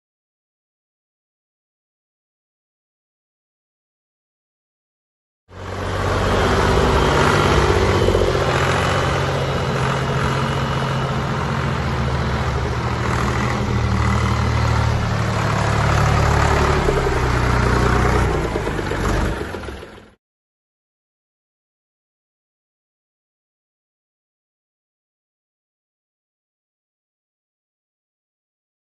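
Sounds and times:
tractor diesel engine running: 5.5s - 20.2s.

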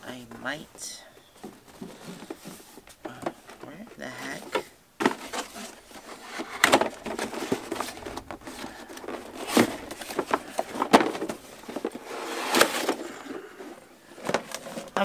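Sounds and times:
cardboard flaps scraping: 5.0s - 13.4s.

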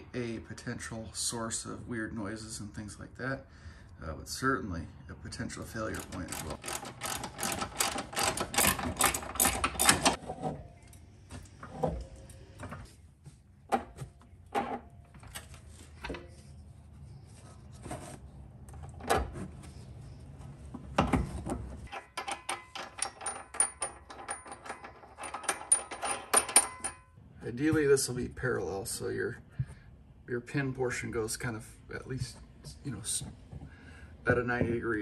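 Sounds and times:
metal clinks and knocks: 5.8s - 12.3s, 21.2s - 27.2s.

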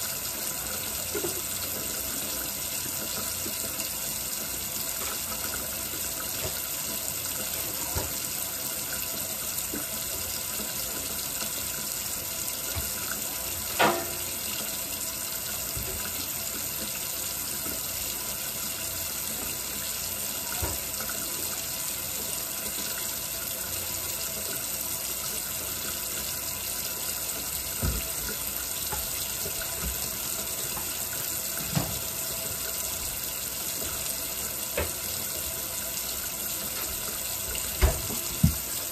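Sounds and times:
faucet running into sink: 0.0s - 38.9s
dishes knocking and clinking: 13.7s - 14.3s, 37.7s - 38.6s.

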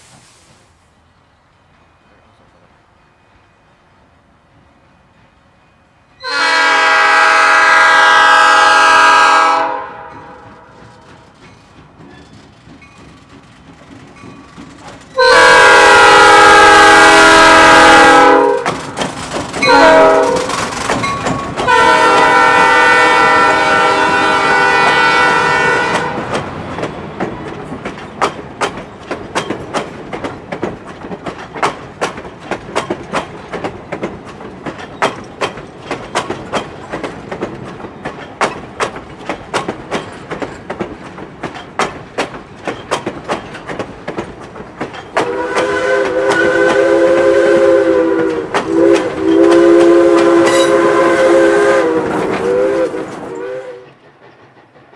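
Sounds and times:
locomotive air horn blasts: 6.2s - 10.7s, 15.2s - 18.7s, 19.7s - 20.6s, 21.6s - 26.3s, 45.2s - 53.9s
train wheels clacking over rail joints: 8.0s - 54.9s.

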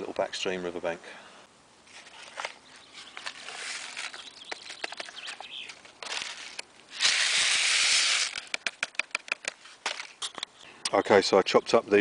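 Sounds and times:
packet rustling and crinkling: 1.9s - 10.4s.

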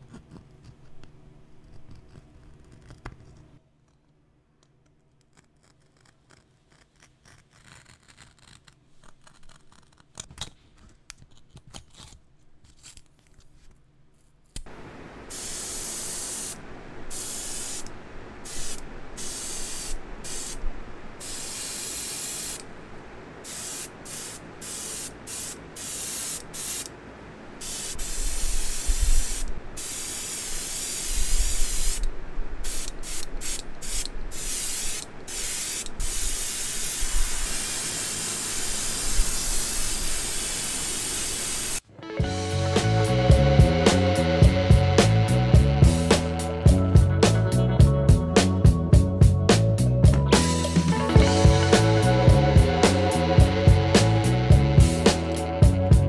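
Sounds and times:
knife scratching tape: 0.0s - 3.5s, 5.1s - 13.4s
airbrush hissing: 14.7s - 22.7s, 23.4s - 26.9s, 27.6s - 41.8s.

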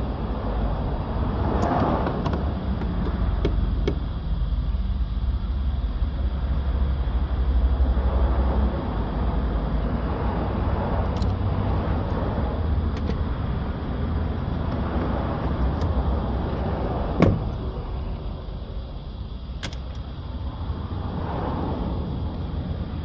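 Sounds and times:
low background rumble: 0.0s - 23.0s
sharp knock: 17.2s - 17.5s.

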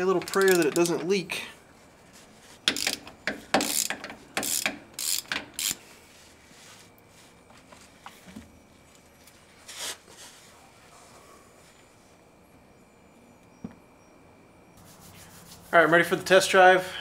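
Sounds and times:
tool handling noise: 0.0s - 1.2s, 2.5s - 5.8s
socket ratchet clicking: 0.2s - 1.0s, 2.7s - 5.8s.

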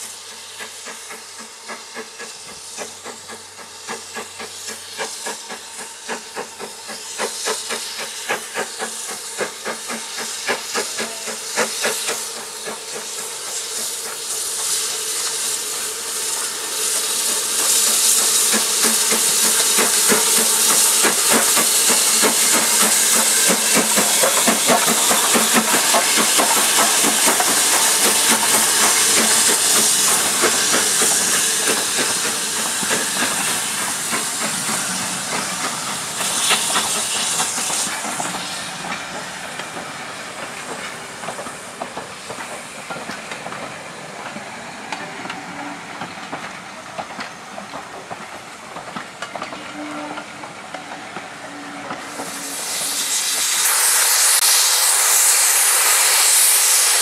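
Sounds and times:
loud steam hiss: 0.0s - 57.0s
steam locomotive exhaust beats: 0.0s - 57.0s
train coaches rolling by: 0.0s - 57.0s.

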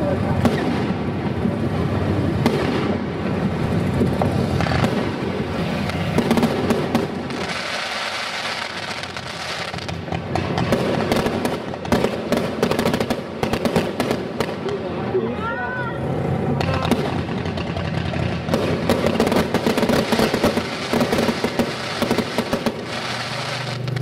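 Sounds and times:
fireworks bangs and crackling: 0.0s - 24.0s
sharp cracks and pops: 22.5s - 24.0s.

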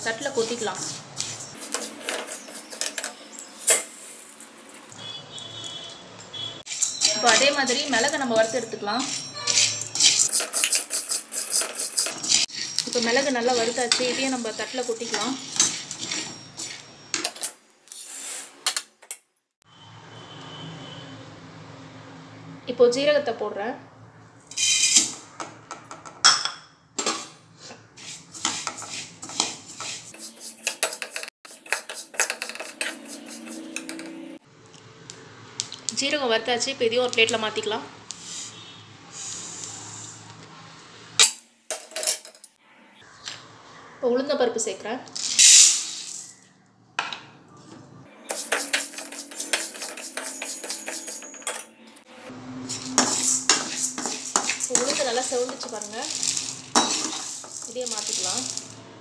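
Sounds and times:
metal ladle scraping pan: 0.0s - 4.9s, 6.6s - 17.1s, 27.0s - 34.4s, 48.2s - 51.7s, 52.5s - 58.8s
seeds rattling in pan: 45.2s - 46.4s, 48.3s - 51.4s, 52.8s - 58.9s.

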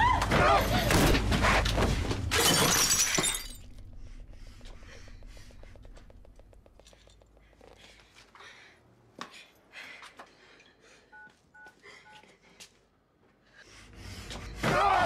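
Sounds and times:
vase crashing and glass smashing: 2.3s - 3.8s.

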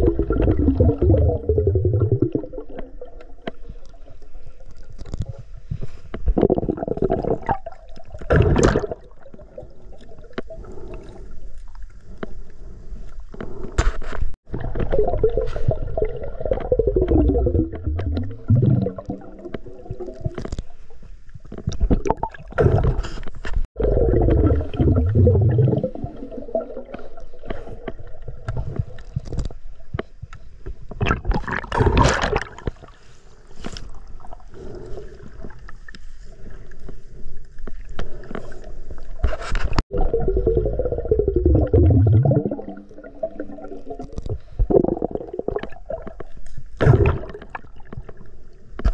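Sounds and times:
underwater gurgling and bubbling: 0.0s - 3.5s, 6.2s - 11.2s, 14.4s - 20.8s, 21.6s - 29.4s, 39.9s - 48.4s.

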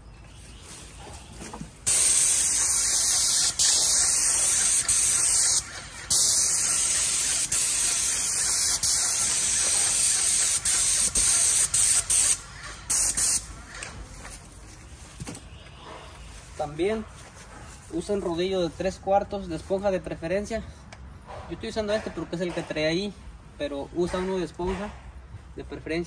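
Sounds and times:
paint spray gun hissing: 1.9s - 13.5s.

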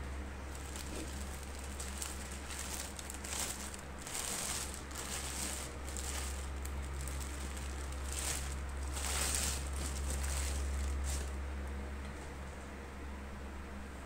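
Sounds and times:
steady low hum: 0.0s - 14.0s
plastic film crinkling: 0.5s - 11.4s.

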